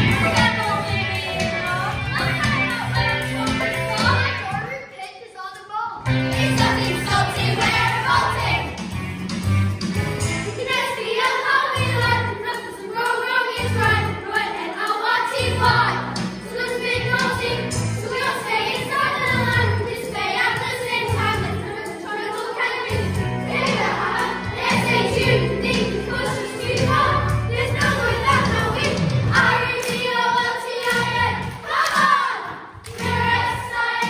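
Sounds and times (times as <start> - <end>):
instrumental accompaniment: 6.0 - 32.2
children singing in unison: 6.4 - 8.7, 10.6 - 34.0
pulsing bass line: 23.2 - 29.8.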